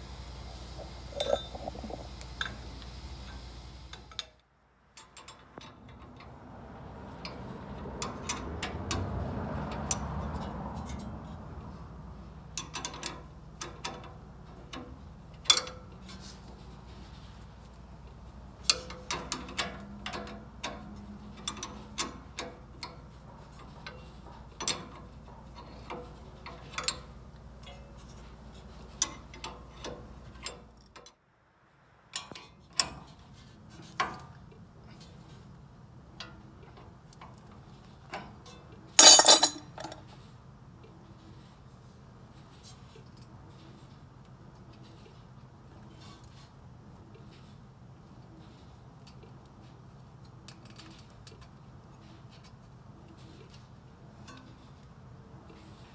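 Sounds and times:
low steady hum: 0.0s - 5.0s
metal tool clinks: 1.2s - 1.6s, 39.0s - 40.0s.

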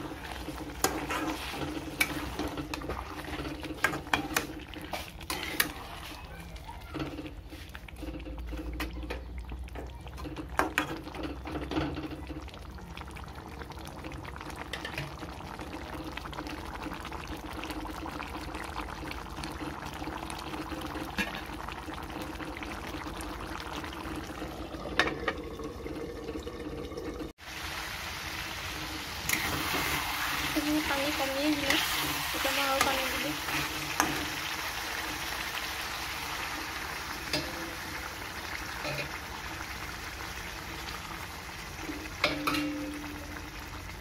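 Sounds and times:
gravy bubbling: 0.0s - 27.4s
water pouring into a pan: 0.0s - 44.0s
metal spatula knocking pan: 42.2s - 43.1s.

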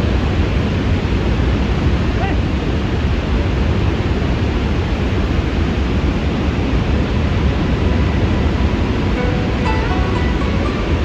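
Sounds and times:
waterfall rushing: 5.5s - 11.0s.

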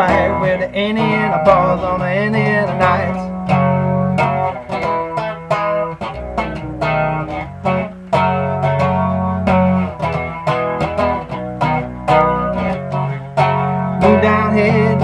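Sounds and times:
person singing: 0.0s - 3.3s, 14.0s - 15.0s
bass guitar riff: 0.0s - 15.0s.

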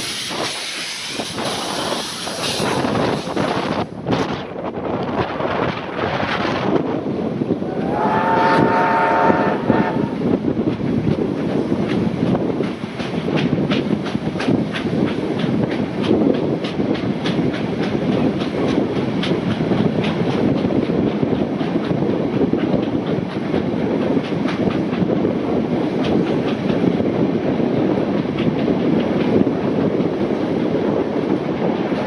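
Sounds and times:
train wheel and wind rush: 0.0s - 32.0s
wheels clacking over rail joints: 10.2s - 32.0s.

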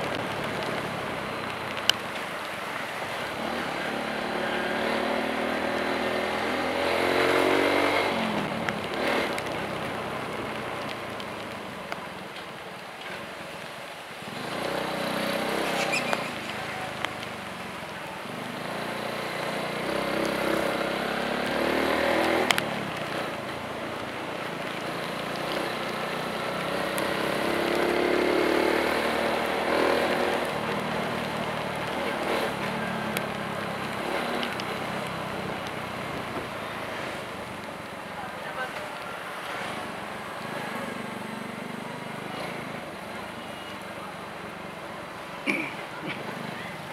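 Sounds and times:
tyres hissing on wet road: 0.0s - 46.9s
vehicle engine revving: 3.4s - 9.8s, 18.6s - 23.3s, 25.0s - 34.9s.

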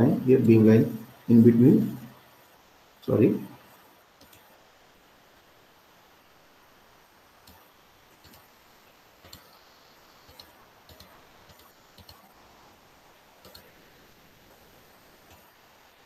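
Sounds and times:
low steady hiss: 0.0s - 16.0s
computer mouse clicks: 4.2s - 4.5s, 7.4s - 8.5s, 9.2s - 9.6s, 10.2s - 12.3s, 13.4s - 13.8s.

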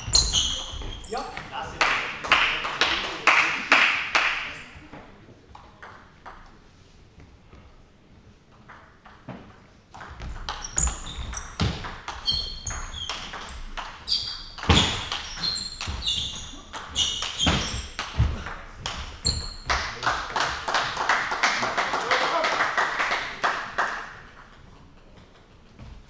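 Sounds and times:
shoes squeaking on floor: 0.0s - 1.7s, 10.1s - 20.0s
noisy hall sound: 0.0s - 26.0s.

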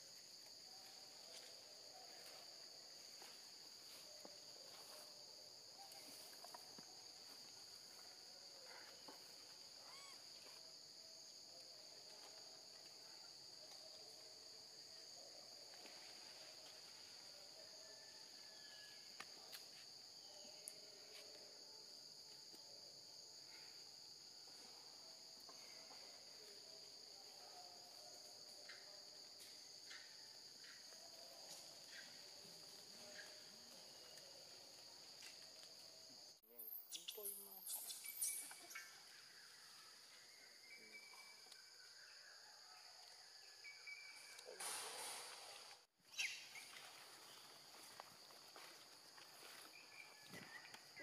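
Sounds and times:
insects droning: 0.0s - 51.0s
faint chirps: 0.6s - 21.6s, 36.4s - 47.5s.

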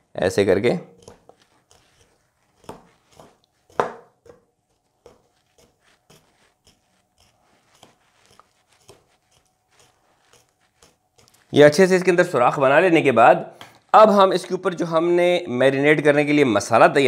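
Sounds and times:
knife stabbing raw meat: 1.0s - 4.4s.

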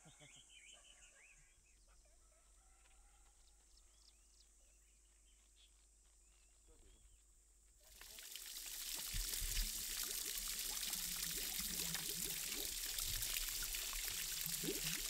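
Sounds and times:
water trickling onto stones: 7.8s - 15.0s.

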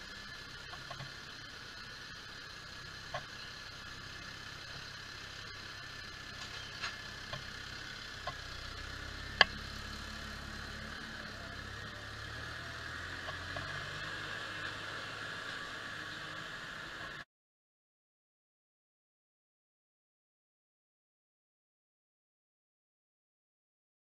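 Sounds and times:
tractor diesel engine idling: 0.0s - 14.0s.

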